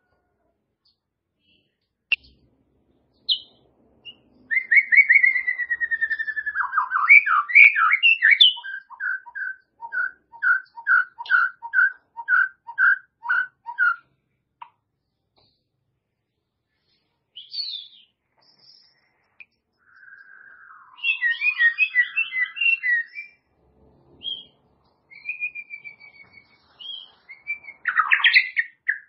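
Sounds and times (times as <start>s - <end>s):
songbird singing trills and whistles: 3.1s - 14.1s, 17.3s - 23.5s, 24.2s - 29.0s.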